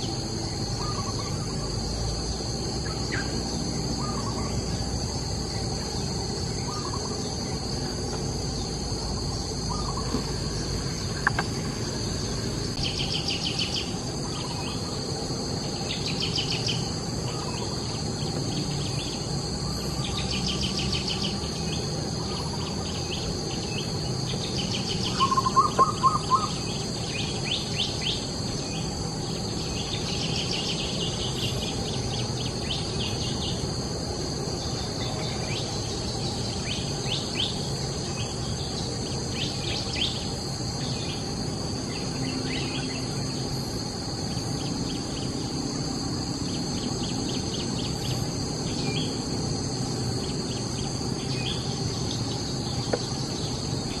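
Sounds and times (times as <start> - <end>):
high-pitched insect chorus: 0.0 - 54.0
pulsed insect chirping: 0.0 - 54.0
bird calling loud notes: 24.9 - 26.7.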